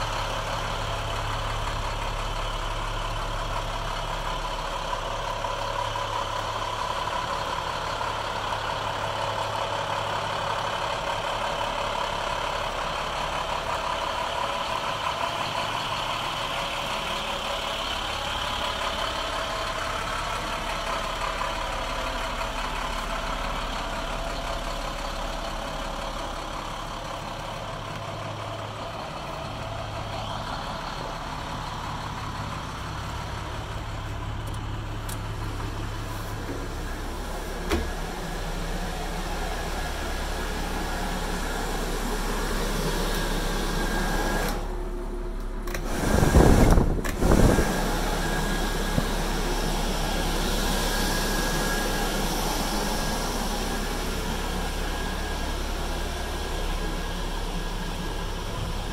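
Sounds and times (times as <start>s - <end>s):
diesel engine idling: 0.0s - 58.9s.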